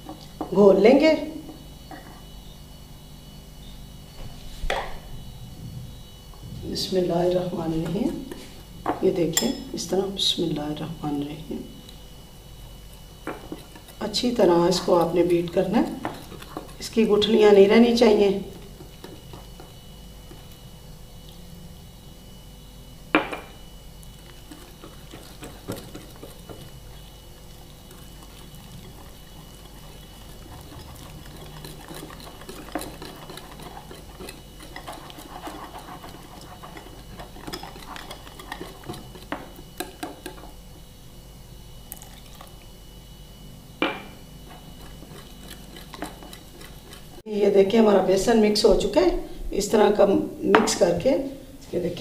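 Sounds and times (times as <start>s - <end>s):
whisk scraping and clinking in bowl: 9.3s - 9.8s, 13.3s - 19.7s, 24.2s - 40.6s, 44.5s - 47.2s.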